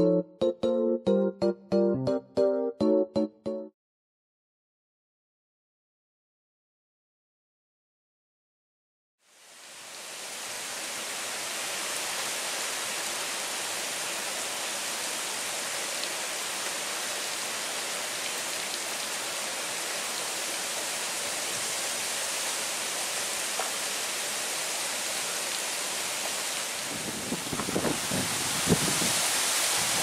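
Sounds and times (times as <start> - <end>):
heavy rain hissing: 9.2 - 30.0.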